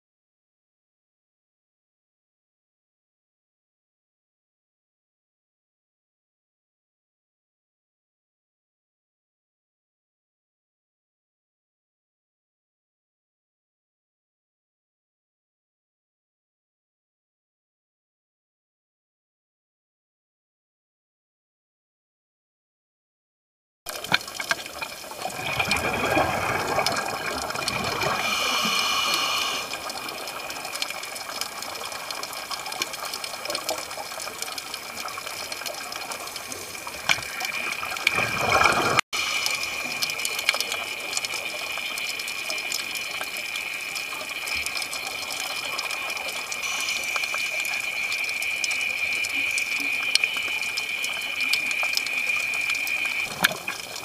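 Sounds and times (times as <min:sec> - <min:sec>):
bubbles from diver exhaling: 0:25.2 - 0:30.7.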